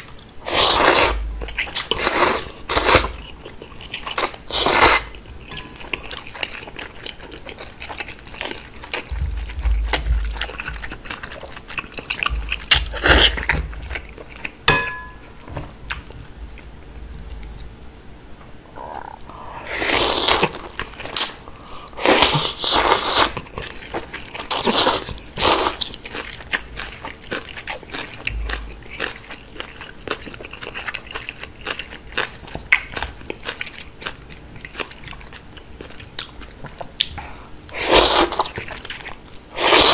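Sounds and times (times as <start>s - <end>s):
noodle slurping and chewing: 0.4s - 5.2s, 22.0s - 36.8s, 37.7s - 39.9s.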